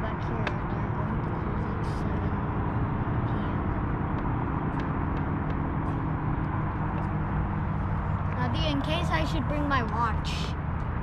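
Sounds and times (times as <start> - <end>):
road traffic drone: 0.0 - 11.0.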